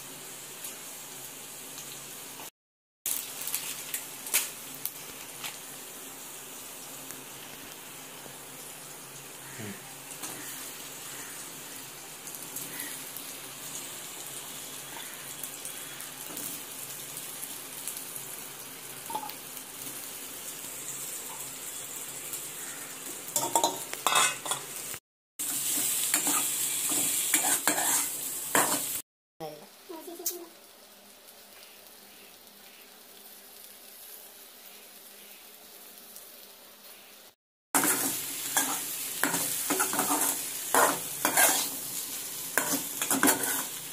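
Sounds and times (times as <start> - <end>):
food sizzling in oil: 0.0 - 2.5, 3.1 - 43.9
metal spoon scraping a pan: 23.4 - 24.7, 25.6 - 29.0, 37.8 - 41.8, 42.6 - 43.8.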